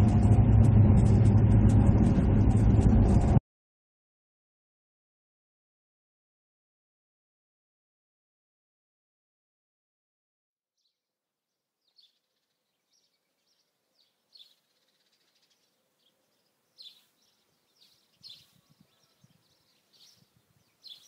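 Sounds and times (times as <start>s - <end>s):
birds chirping: 11.8s - 21.0s.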